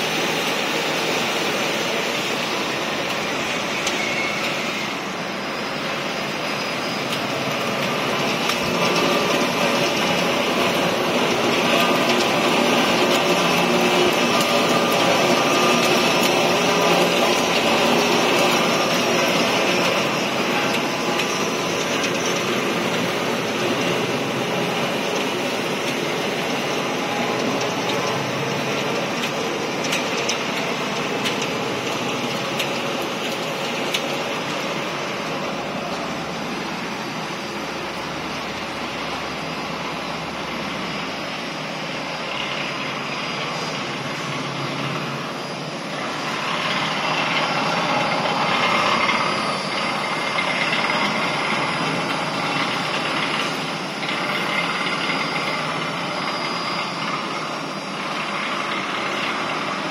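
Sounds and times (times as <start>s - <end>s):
production line machine noise: 0.0s - 59.9s.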